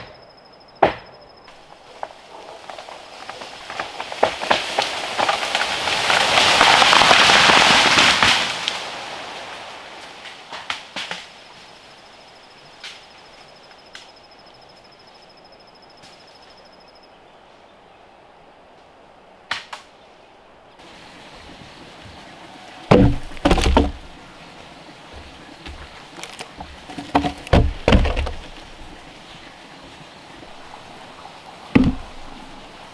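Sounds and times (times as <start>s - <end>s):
wind rustling bamboo leaves: 1.5s - 32.9s
wooden log knocking on ground: 22.9s - 24.2s, 25.1s - 29.0s, 31.8s - 32.4s.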